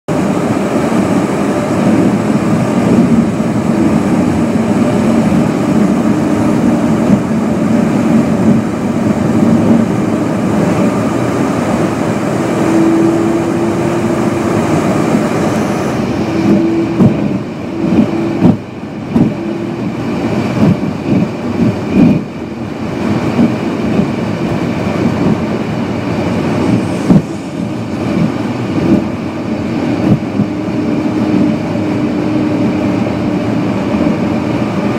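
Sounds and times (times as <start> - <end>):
car cabin road rumble: 0.1 - 34.9
irregular thumps: 16.4 - 19.4.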